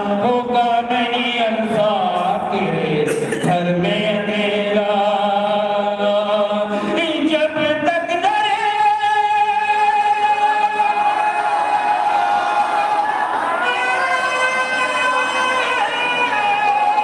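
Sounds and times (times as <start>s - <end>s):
man singing long held notes: 0.0s - 13.0s, 13.6s - 17.0s.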